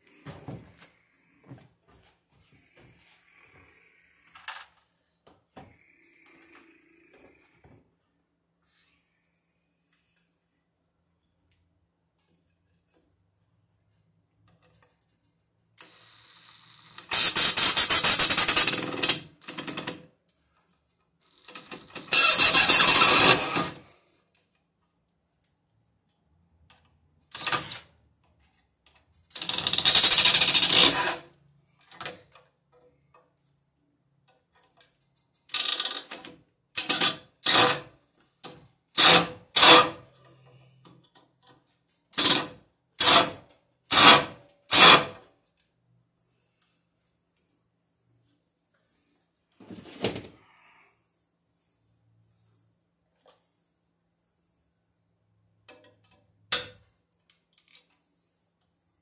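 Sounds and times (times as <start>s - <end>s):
cordless drill driving screws: 15.9s - 19.2s, 21.6s - 23.8s, 27.3s - 27.9s, 29.4s - 31.2s, 37.0s - 37.8s.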